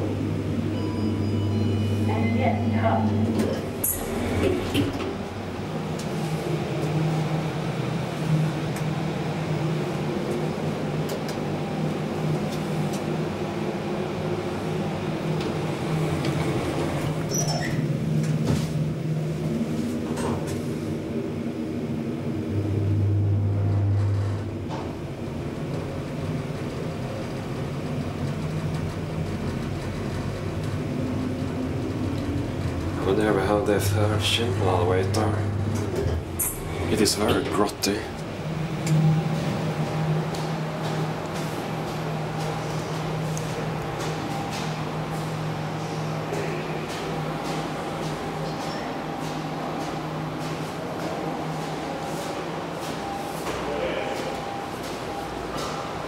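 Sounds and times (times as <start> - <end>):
elevator hydraulic hum: 0.0 - 56.0
deep buzz: 21.7 - 25.3, 31.5 - 46.3.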